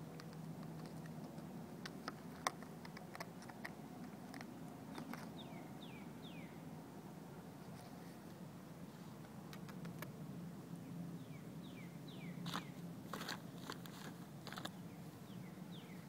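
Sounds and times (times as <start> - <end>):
faint plastic clicks and rustles: 0.1 - 5.4, 12.5 - 14.8
bird chirps: 4.9 - 6.6, 11.2 - 12.8.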